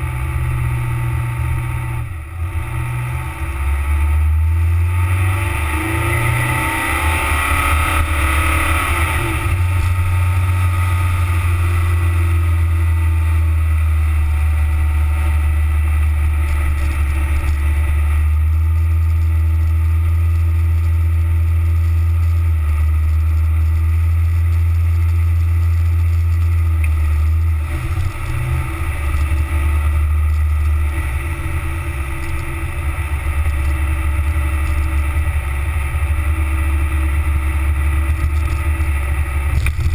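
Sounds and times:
car engine and tyres rumbling: 0.0 - 39.9.

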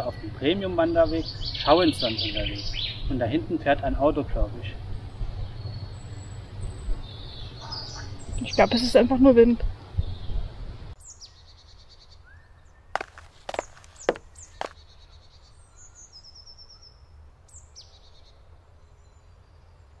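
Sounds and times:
songbirds chirping: 0.0 - 9.1, 10.0 - 20.0
sharp knocks: 13.0 - 14.7.

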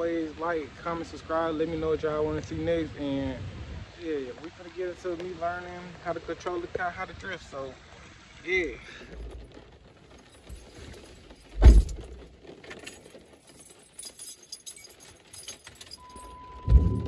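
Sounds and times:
keys jangling: 10.2 - 16.4
heavy thump: 11.5 - 12.2
steady beep: 16.0 - 17.0.

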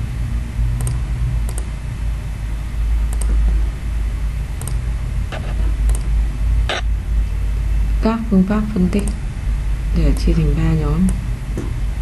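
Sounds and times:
low background rumble: 0.0 - 12.0
computer mouse clicks: 0.8 - 1.7, 3.1 - 3.4, 4.6 - 6.1.

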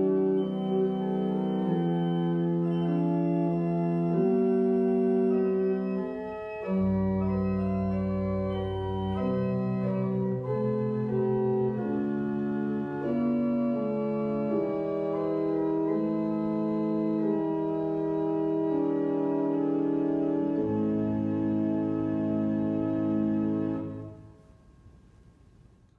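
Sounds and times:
organ pedal bass notes: 0.0 - 24.2
pipe organ chords: 0.0 - 24.8.

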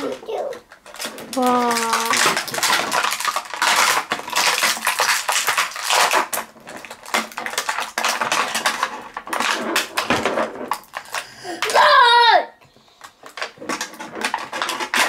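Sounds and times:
plastic packaging crinkling: 0.0 - 11.8, 12.9 - 15.0.

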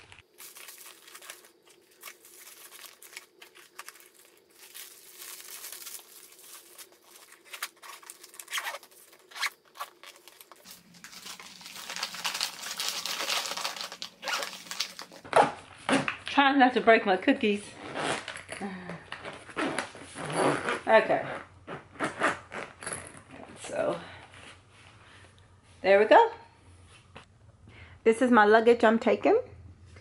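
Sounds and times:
plastic bags rustling: 0.0 - 15.8.

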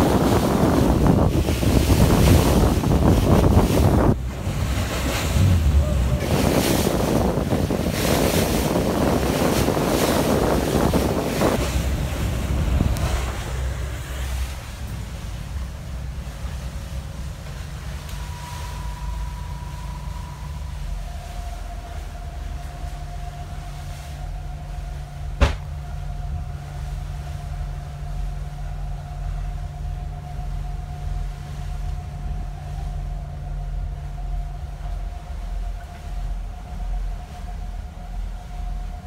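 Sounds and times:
faint engine whine: 0.0 - 39.0
ferry engines droning: 0.0 - 39.0
sharp knock: 25.4 - 25.6.

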